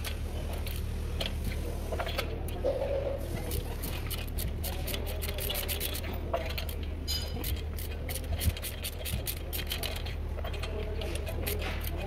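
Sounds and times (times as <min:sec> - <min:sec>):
steady low hum: 0:00.0 - 0:12.0
ratchet clicking: 0:03.5 - 0:12.0.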